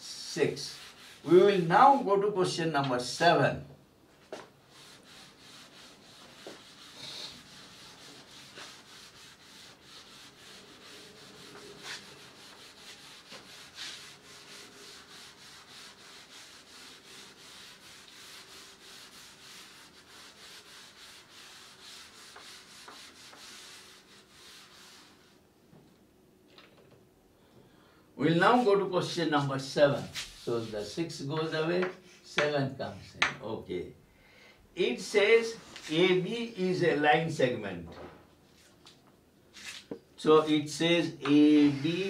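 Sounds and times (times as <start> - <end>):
eraser rubbing: 4.7 - 25.1.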